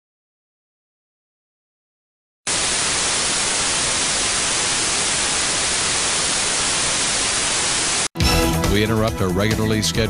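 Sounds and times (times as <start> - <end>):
television static hiss: 2.5 - 8.1.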